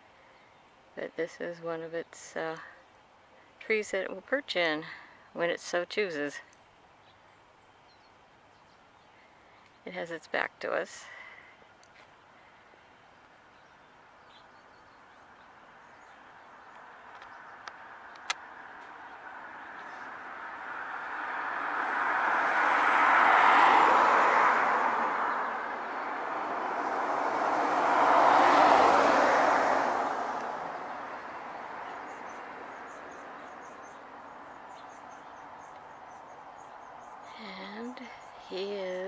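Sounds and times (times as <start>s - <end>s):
vehicles passing: 0.0s - 39.0s
sharp clicks: 16.7s - 18.4s.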